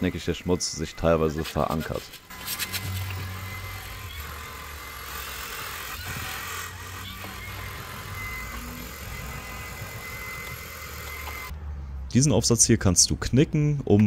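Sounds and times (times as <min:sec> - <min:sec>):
vacuum motor high whine: 0:02.3 - 0:11.5.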